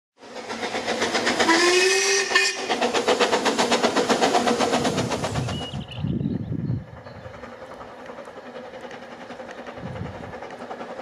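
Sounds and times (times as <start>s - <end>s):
steam locomotive exhaust beats: 0.2s - 11.0s
steam whistle: 1.4s - 2.7s.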